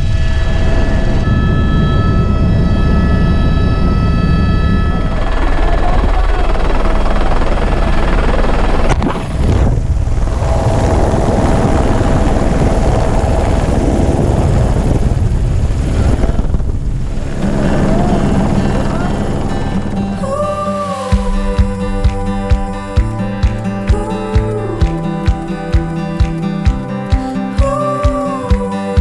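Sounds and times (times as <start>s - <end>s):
helicopter engine and rotor: 0.0s - 20.3s
wind rushing: 6.0s - 27.2s.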